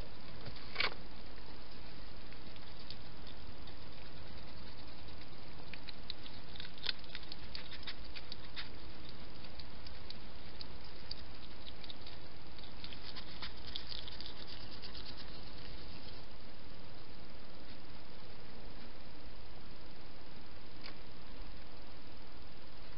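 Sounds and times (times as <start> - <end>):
hedgehog clicks and crackles: 0.4 - 16.3.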